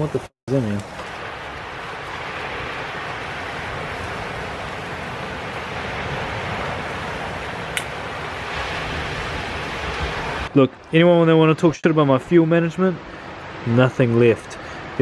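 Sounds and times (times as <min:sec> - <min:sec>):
chicken sizzling on a grill: 0:00.5 - 0:09.9.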